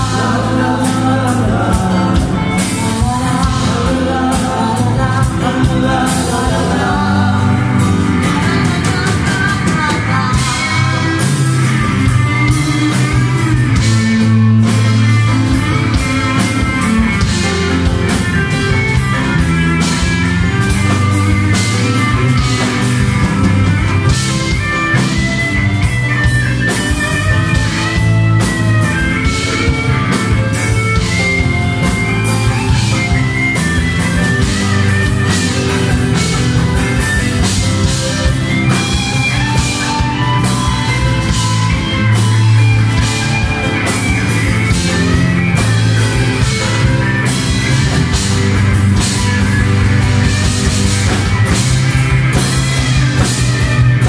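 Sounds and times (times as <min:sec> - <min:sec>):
live rock band playing: 0:00.0 - 0:54.0.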